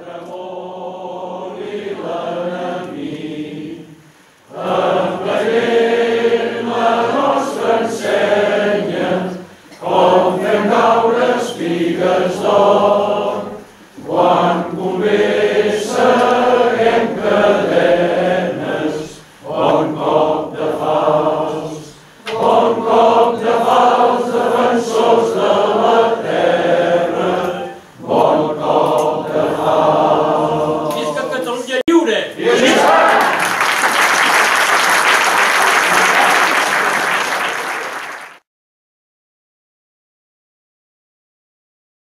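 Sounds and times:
many voices singing together: 0:00.0 - 0:31.5, 0:32.4 - 0:34.0.

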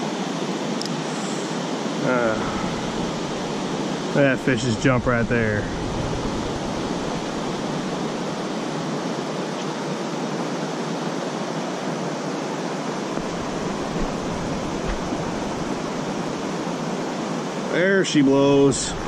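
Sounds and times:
creek running over rocks: 0:13.1 - 0:16.8.

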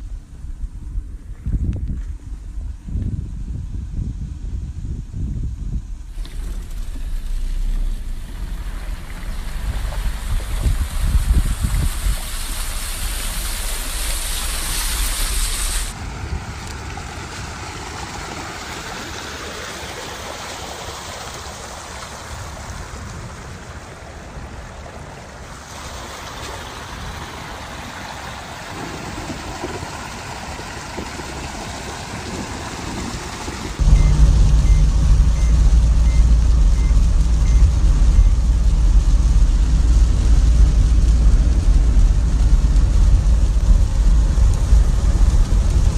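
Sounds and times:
wind buffeting microphone: 0:00.0 - 0:18.4, 0:28.6 - 0:45.9
engine hum and road noise: 0:00.0 - 0:45.9
rainwater runoff rushing: 0:06.0 - 0:45.9
vehicle driving through water: 0:06.1 - 0:45.9
short beeps: 0:33.8 - 0:38.4.

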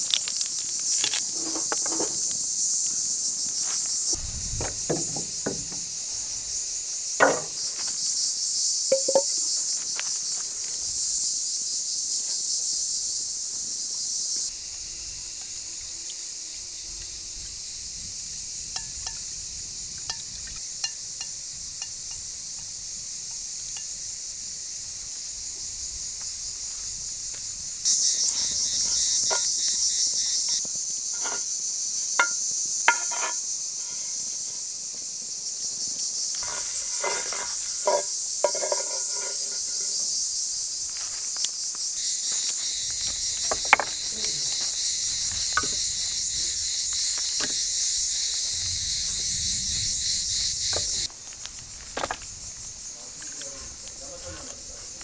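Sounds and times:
fat sizzling: 0:00.0 - 0:02.4, 0:36.4 - 0:40.2
insects droning: 0:00.0 - 0:55.0
wooden spoon knocking in pan: 0:07.2 - 0:07.6, 0:08.9 - 0:09.3, 0:32.2 - 0:33.3.

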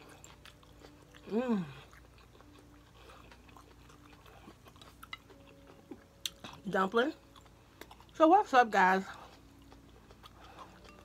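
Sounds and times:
quiet chewing of food: 0:00.0 - 0:08.2, 0:09.0 - 0:11.0
person humming mmm: 0:01.2 - 0:02.0.

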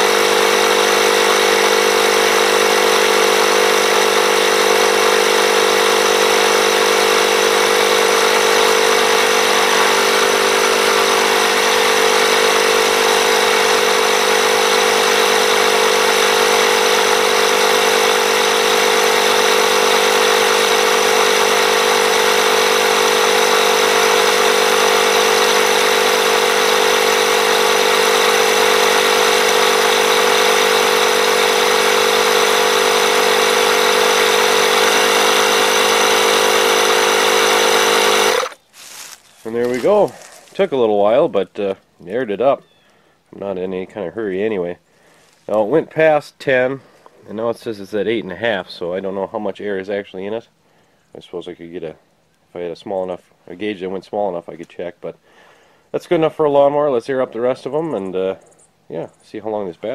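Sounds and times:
air compressor droning: 0:00.0 - 0:40.6.

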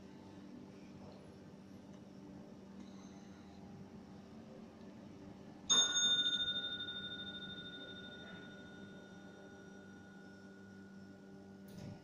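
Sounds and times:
elevator chime ding: 0:05.7 - 0:11.2.

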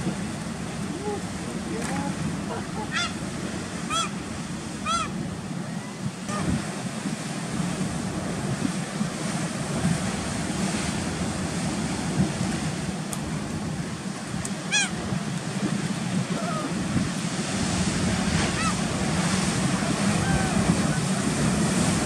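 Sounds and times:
surf washing over rocks: 0:00.0 - 0:22.0
gulls calling: 0:00.7 - 0:06.6, 0:14.5 - 0:15.1, 0:18.1 - 0:22.0.

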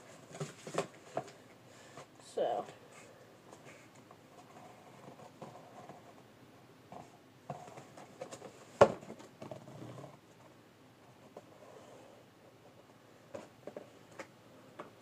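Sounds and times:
cardboard handling noise: 0:00.0 - 0:01.4, 0:07.0 - 0:10.5.

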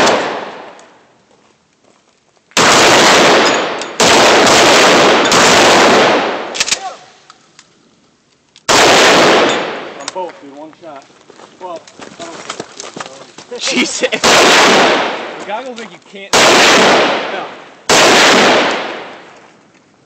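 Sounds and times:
gunshots with echo: 0:00.0 - 0:00.8, 0:02.6 - 0:06.7, 0:08.7 - 0:10.0, 0:14.1 - 0:15.4, 0:16.3 - 0:19.3.

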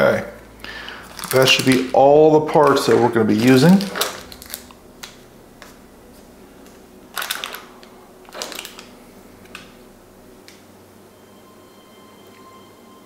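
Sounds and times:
small plastic parts clattering: 0:01.0 - 0:05.2, 0:07.1 - 0:09.7.

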